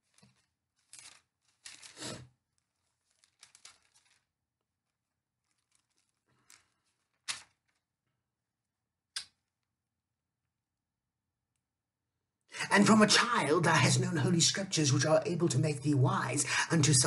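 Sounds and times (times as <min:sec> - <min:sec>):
thin pages rustling: 0:00.0 - 0:08.0.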